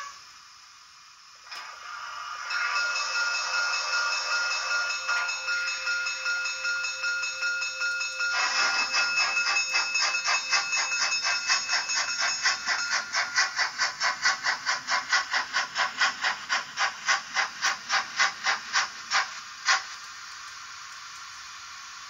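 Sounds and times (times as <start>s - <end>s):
steam hiss: 0.0s - 22.0s
steam locomotive chuffing: 0.0s - 22.0s.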